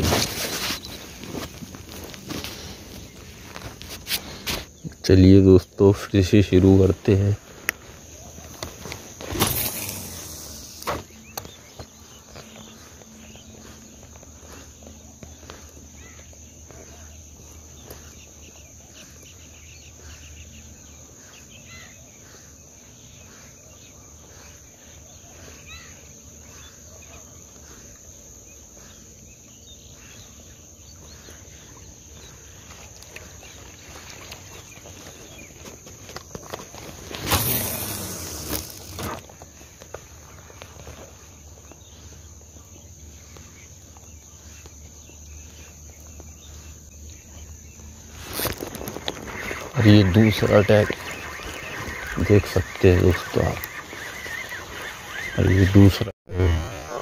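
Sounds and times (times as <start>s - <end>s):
high-pitched insect chirring: 8.4s - 16.4s, 37.1s - 39.3s
sharp sounds: 9.2s - 11.1s, 37.1s - 39.2s.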